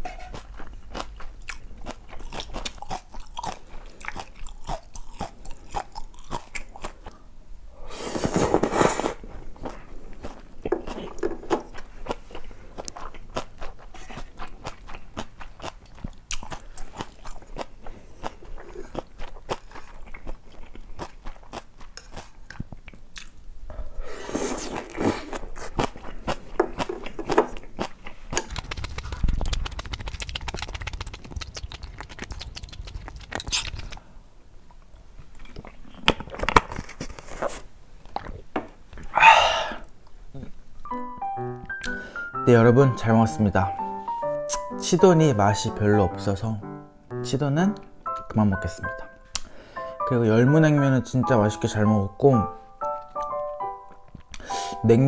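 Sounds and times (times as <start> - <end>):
wet chewing with crunches: 0.0 - 7.2, 8.5 - 23.4, 24.4 - 39.2, 44.2 - 44.8
slurping noodles: 7.9 - 9.3, 24.0 - 26.0.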